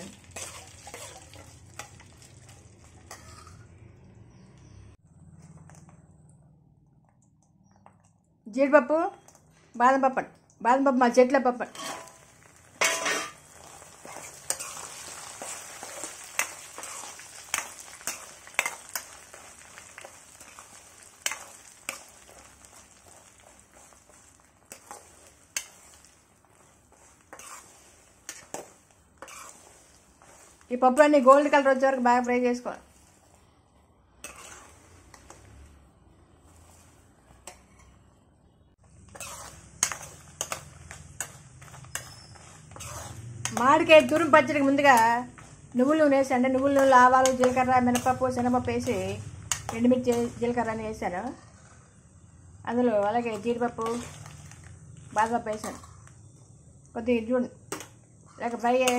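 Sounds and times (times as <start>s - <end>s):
metal spoon scraping a pan: 0.0s - 4.4s, 11.6s - 31.8s, 34.2s - 35.6s, 36.4s - 38.1s, 38.9s - 52.0s, 52.7s - 56.4s, 57.7s - 58.9s
nuts sizzling in hot oil: 0.0s - 5.0s, 10.8s - 38.0s, 38.7s - 58.9s.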